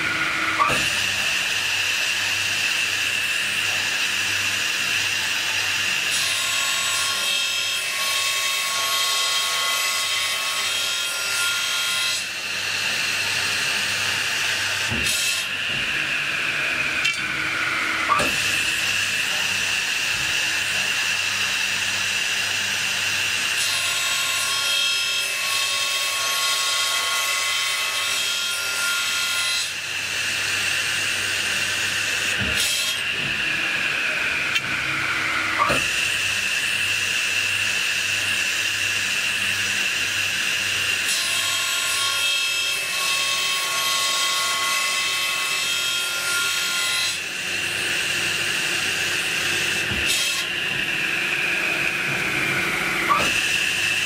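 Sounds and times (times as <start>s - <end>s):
saw blade whining: 12.2s - 23.6s, 28.1s - 41.1s, 42.8s - 54.0s.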